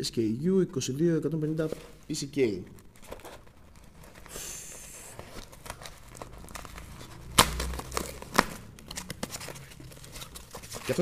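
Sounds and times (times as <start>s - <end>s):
cardboard packaging rustling: 1.5s - 11.0s.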